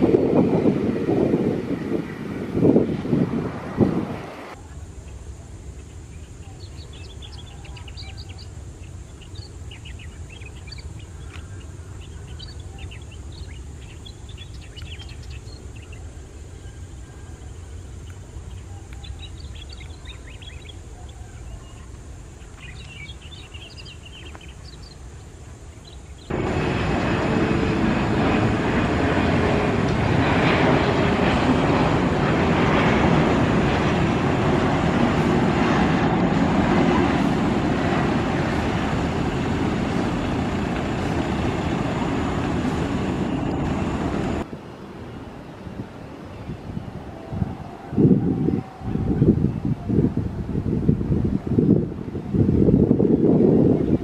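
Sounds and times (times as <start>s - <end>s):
jet engine rush: 0.0s - 4.6s, 26.3s - 54.0s.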